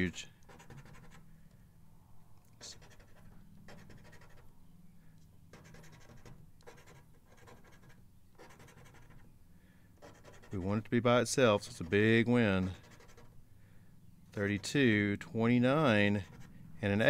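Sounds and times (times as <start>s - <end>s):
coin scraping lottery ticket: 0.5s - 1.2s, 2.6s - 4.5s, 5.5s - 9.2s, 10.0s - 10.9s.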